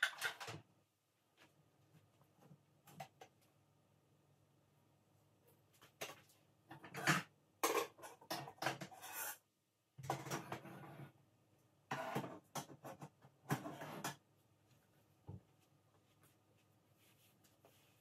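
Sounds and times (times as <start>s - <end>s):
dishes scraping and clattering: 6.7s - 9.4s.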